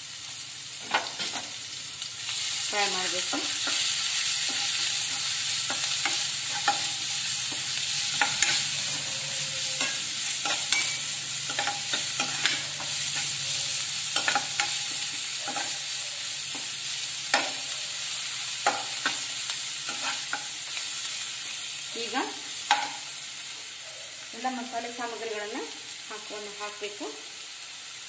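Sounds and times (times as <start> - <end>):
onions sizzling in oil: 0.0 - 28.0
metal spatula scraping pan: 3.1 - 16.7, 19.9 - 20.5.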